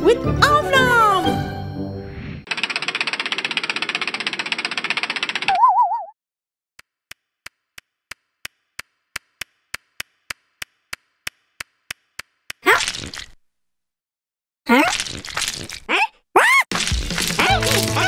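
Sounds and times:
cartoon footstep ticks: 6.8 - 12.6.

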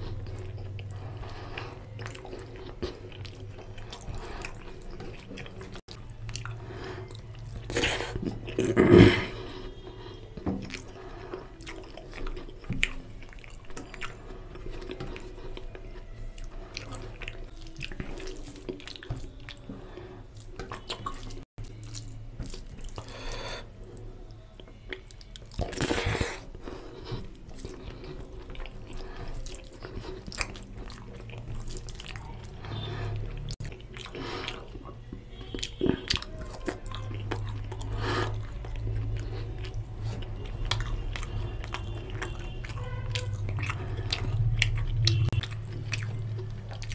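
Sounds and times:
hand squishing rice and curry: 24.0 - 46.9.

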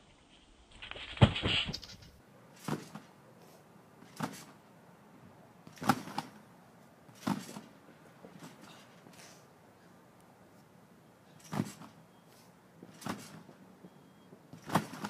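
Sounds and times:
trampoline landing thumps: 0.8 - 3.1, 4.0 - 4.6, 5.7 - 6.4, 7.1 - 7.7, 11.4 - 12.0, 12.9 - 13.5, 14.5 - 15.0.

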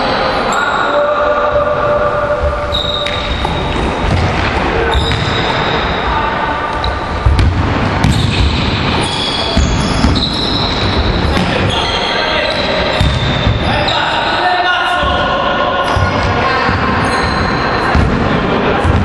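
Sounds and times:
sneaker squeaks: 2.4 - 7.4, 8.0 - 19.0
basketballs bouncing on hardwood: 3.4 - 5.5, 7.2 - 11.8, 12.9 - 13.7, 17.9 - 19.0.

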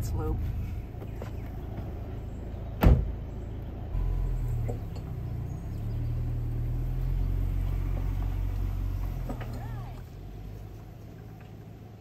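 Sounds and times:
car engine idling: 0.0 - 12.0
car door shutting: 2.8 - 3.1.

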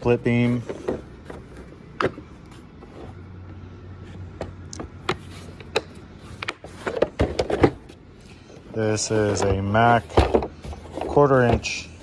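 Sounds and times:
low steady hum: 0.0 - 12.0
plastic cases clacking together: 9.0 - 12.0.

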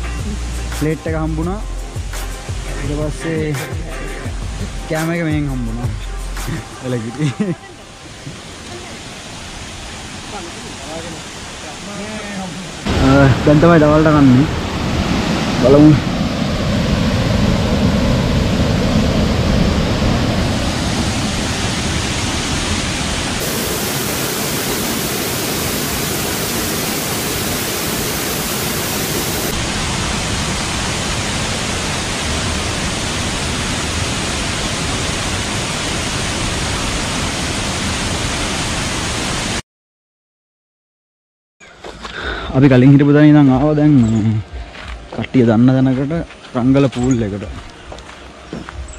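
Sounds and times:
waterfall rushing: 6.5 - 39.6.

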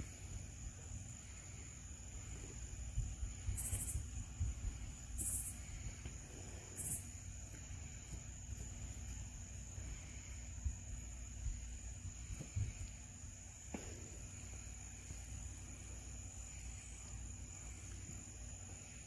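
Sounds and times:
insects droning: 0.0 - 19.0
short high insect buzzes: 3.6 - 4.0.

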